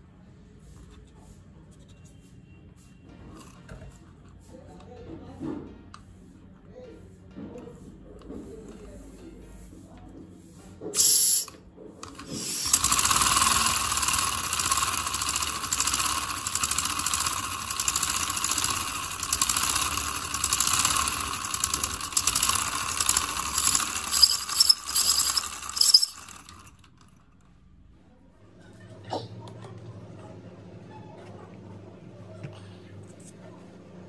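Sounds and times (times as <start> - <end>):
steam engine clattering: 12.0 - 27.0.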